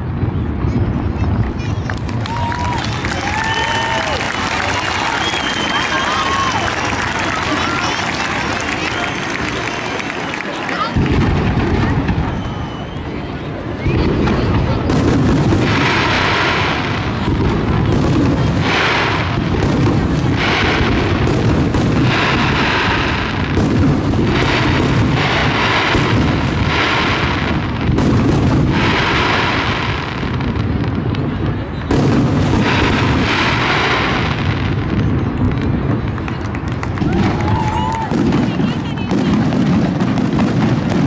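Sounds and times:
firework shells bursting: 13.9 - 31.3.

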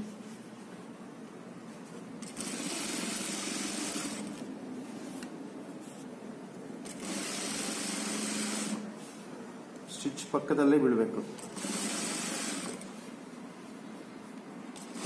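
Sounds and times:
sewing machine stitching: 2.2 - 4.4, 6.8 - 8.9, 11.4 - 12.9, 14.8 - 15.0.

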